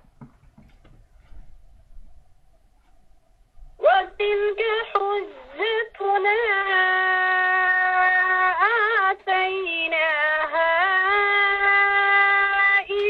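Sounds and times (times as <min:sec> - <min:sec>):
woman chanting melodically: 0:03.8 - 0:13.0.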